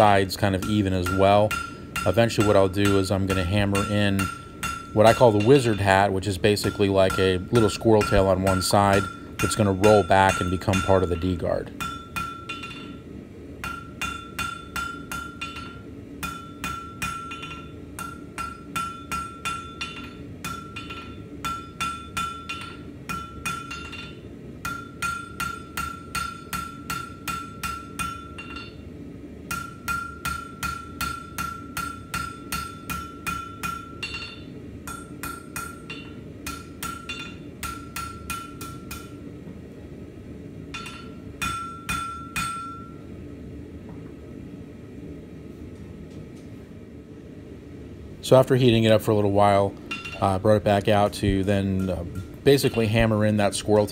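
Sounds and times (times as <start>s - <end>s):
anvil ringing: 0.0s - 13.0s, 13.6s - 28.8s, 29.5s - 39.2s, 40.7s - 43.1s, 49.9s - 50.4s
hammer striking steel on anvil: 0.0s - 28.8s, 29.5s - 39.3s, 40.7s - 43.1s, 49.8s - 53.9s.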